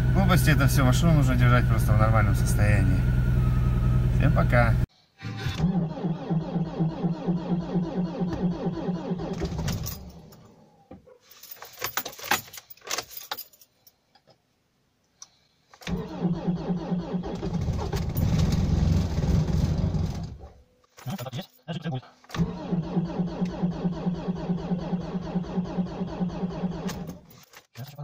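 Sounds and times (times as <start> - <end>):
engine starter cranking: 5.4 - 10.3, 15.8 - 20.4, 22.3 - 27.3
keys jingling: 11.3 - 13.7.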